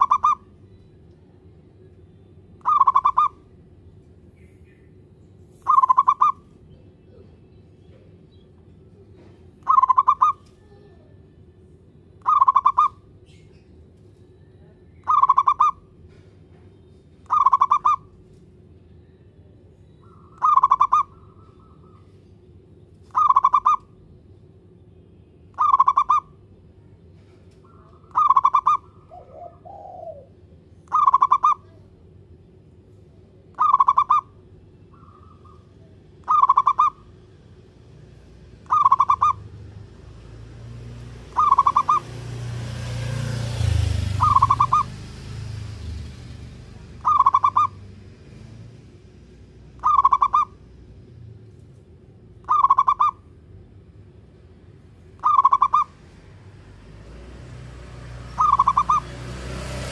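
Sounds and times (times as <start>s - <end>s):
dove cooing: 0.0s - 0.5s, 2.6s - 3.5s, 5.6s - 6.5s, 9.2s - 11.0s, 12.2s - 13.0s, 15.0s - 15.8s, 17.3s - 18.1s, 20.1s - 22.0s, 23.1s - 23.8s, 25.6s - 26.3s, 27.7s - 31.8s, 33.6s - 34.3s, 36.2s - 37.0s, 38.6s - 39.5s, 41.3s - 42.1s, 43.2s - 45.0s, 47.0s - 47.8s, 49.8s - 50.6s, 52.4s - 53.2s, 55.2s - 55.9s, 58.3s - 59.1s.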